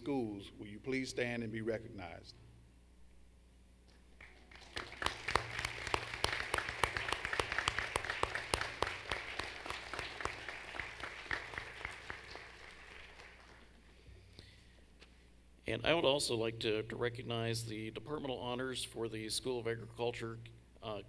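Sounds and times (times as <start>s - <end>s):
audience applauding: 4.2s - 13.8s.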